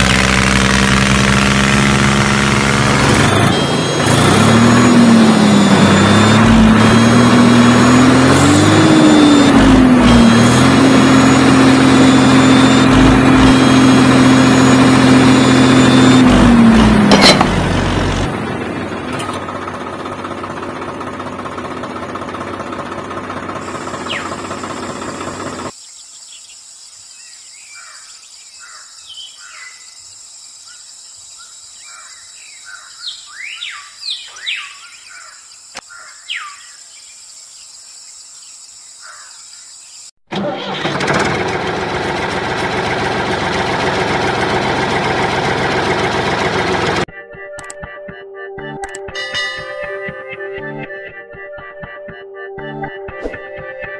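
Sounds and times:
toy tractor motor running: 0.0s - 17.5s
birds chirping: 23.6s - 40.1s.

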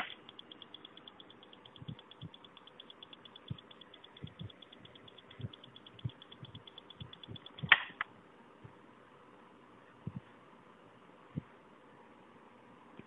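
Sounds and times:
rapid electronic ticking: 0.0s - 8.0s.

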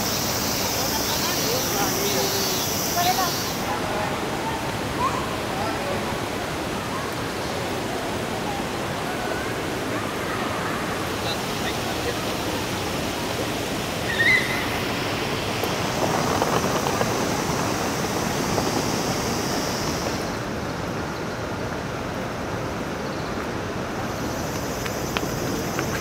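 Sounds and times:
rushing outdoor background noise: 0.0s - 26.0s.

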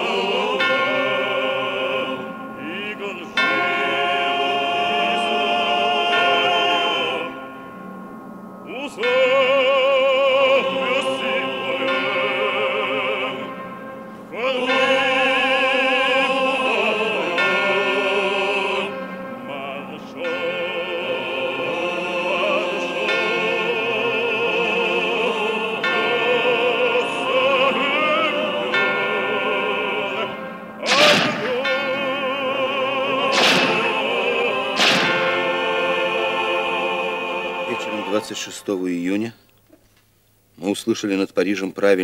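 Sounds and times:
operatic singing with vibrato: 0.0s - 7.9s, 8.6s - 39.4s
music: 0.0s - 39.1s
loud sharp bangs: 30.8s - 31.8s, 33.2s - 35.6s.

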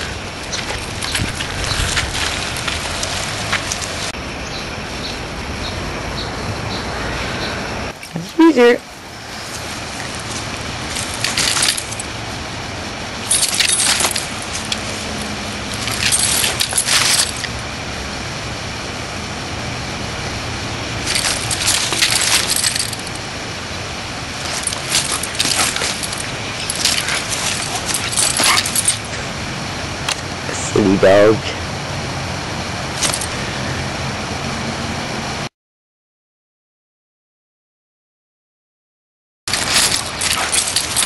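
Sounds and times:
rattling and scuffing on gravel: 0.0s - 4.1s, 9.2s - 12.5s, 13.1s - 17.5s, 21.0s - 29.4s, 33.0s - 33.3s, 39.5s - 41.0s
steady background noise: 0.0s - 35.5s, 39.5s - 41.0s.

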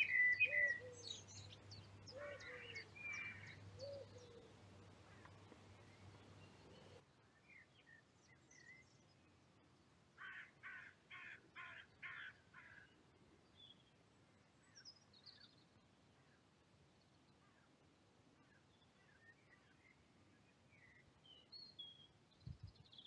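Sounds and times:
small birds chirping: 0.0s - 9.4s, 18.4s - 23.0s
crow cawing: 2.2s - 3.6s, 10.2s - 12.9s.

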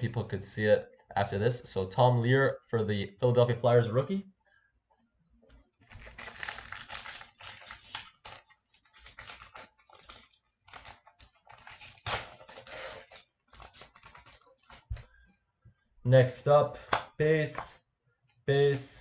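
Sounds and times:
foil wrapper crinkling and tearing: 5.8s - 15.1s.

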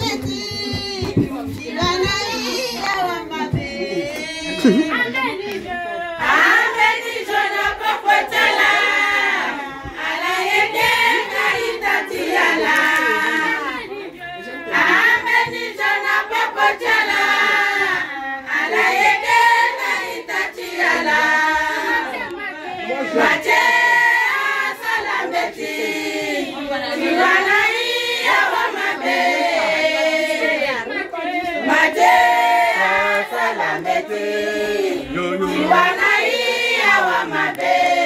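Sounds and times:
hand clapping: 0.0s - 4.3s
women's choir singing: 0.0s - 38.0s.

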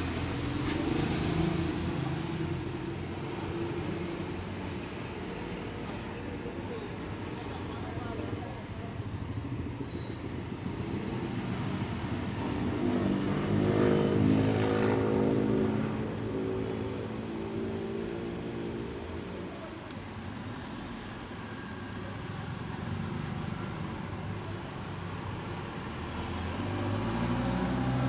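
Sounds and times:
motor vehicle engine passing: 26.0s - 28.0s.

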